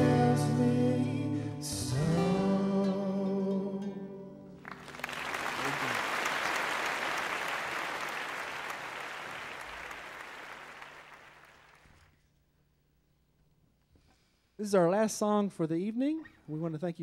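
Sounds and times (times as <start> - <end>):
audience applause: 4.6 - 11.9.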